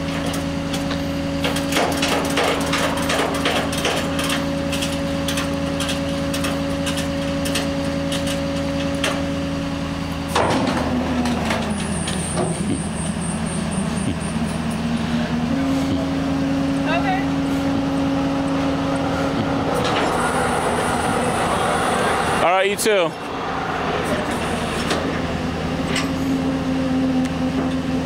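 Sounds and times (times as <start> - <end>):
tow truck engine humming: 0.0 - 28.0
metal knocks and clanks: 0.1 - 9.3, 10.3 - 12.8.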